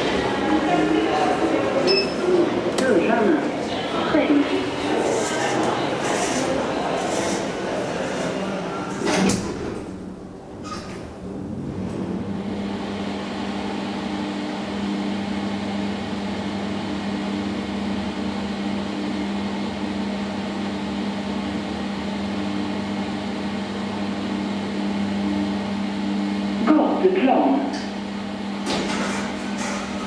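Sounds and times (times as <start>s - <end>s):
elevator car hum: 0.0s - 30.0s.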